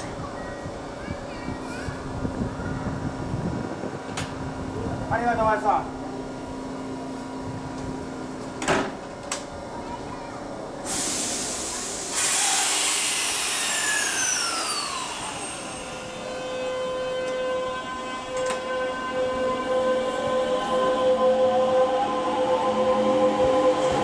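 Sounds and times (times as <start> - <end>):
electric whine of train: 1.8 - 24.0
hiss of released air: 10.8 - 16.0.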